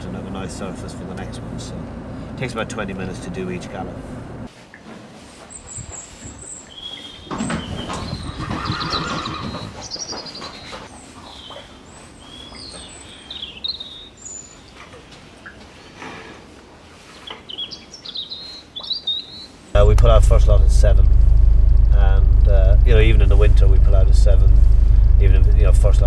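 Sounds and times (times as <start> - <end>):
small birds chirping: 5.5 - 14.9, 17.2 - 19.8
horse whinnying: 8.2 - 9.8.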